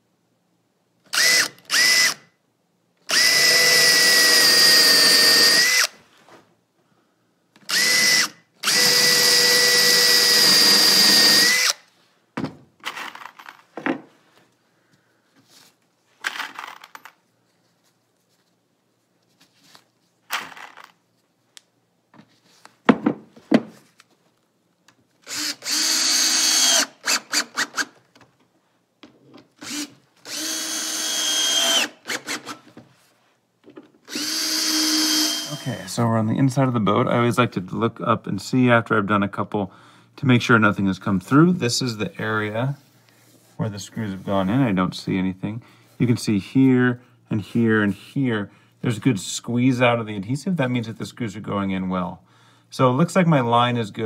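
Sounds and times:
cordless drill running: 1.1 - 2.3, 3.1 - 6.0, 7.6 - 11.8, 25.2 - 27.9, 29.6 - 32.6, 34.1 - 35.8
tools and screws clicking and knocking: 12.8 - 14.0, 16.2 - 17.2.

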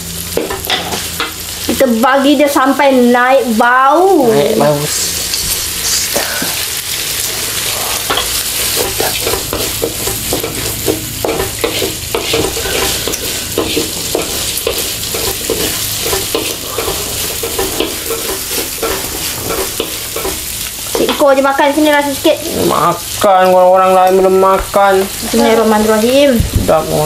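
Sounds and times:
oil sizzling in a wok: 0.0 - 27.0
wooden spatula scraping a pan: 7.2 - 21.3.

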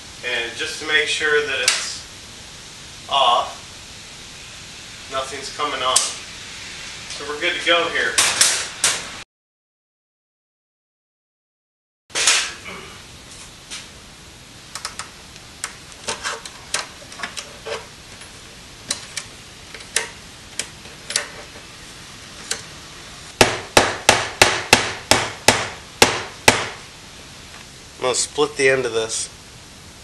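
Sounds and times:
hammer striking metal: 23.4 - 26.8.

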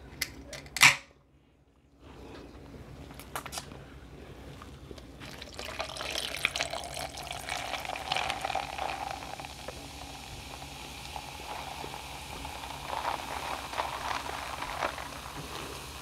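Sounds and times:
soda pouring and fizzing: 5.2 - 16.0.

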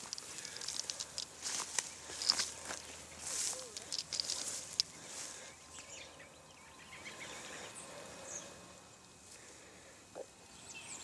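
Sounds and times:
dry grass brushing: 0.0 - 5.5
small birds chirping: 0.0 - 11.0.

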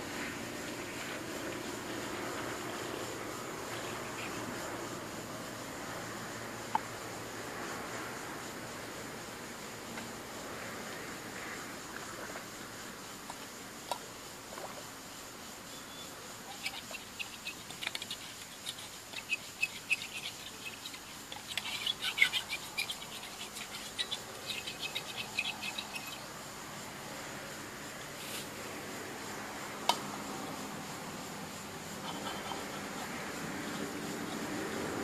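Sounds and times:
pot being scrubbed: 16.5 - 26.2.

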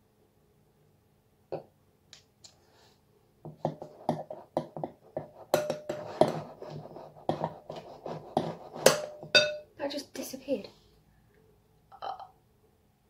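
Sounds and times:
glass ringing: 9.2 - 9.7
spoon clinking against glass: 9.3 - 9.6.

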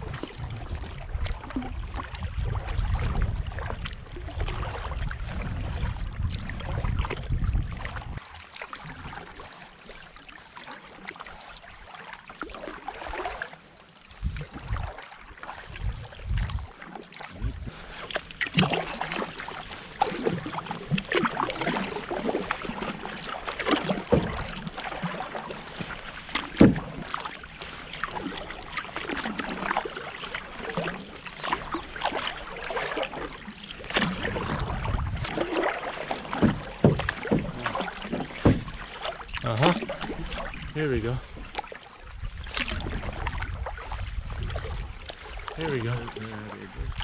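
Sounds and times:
paddle splashes: 0.0 - 47.0
water lapping against hull: 0.0 - 47.0
water splashing and gurgling: 0.0 - 47.0.

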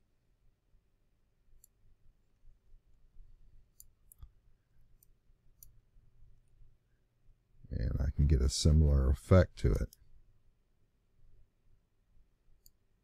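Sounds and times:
computer mouse clicks: 1.6 - 1.8, 3.7 - 4.4, 5.0 - 5.8, 12.6 - 12.8.

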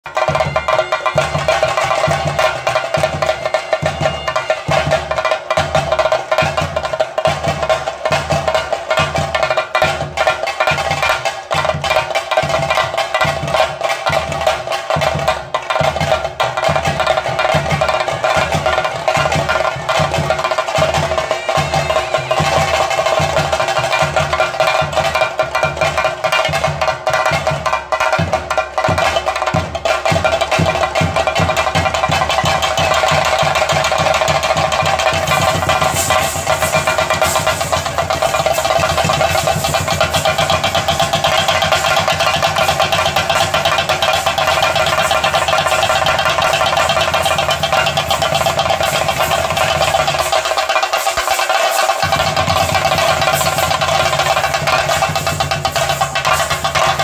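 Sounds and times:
drums beaten in fast rhythm: 0.0 - 57.0.

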